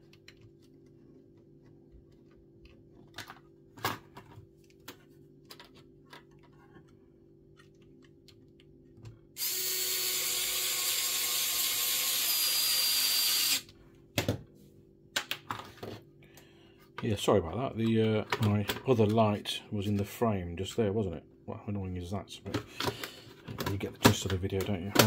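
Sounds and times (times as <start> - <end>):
electric screwdriver running: 9.4 - 13.7.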